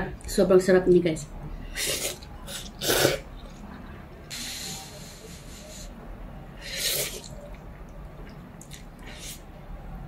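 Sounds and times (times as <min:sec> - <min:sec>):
person slurping noodles: 0:01.7 - 0:03.3, 0:06.6 - 0:07.4, 0:08.7 - 0:09.5.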